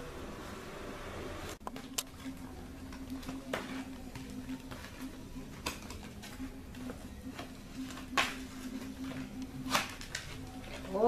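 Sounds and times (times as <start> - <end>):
packing tape ripping: 9.1 - 11.0.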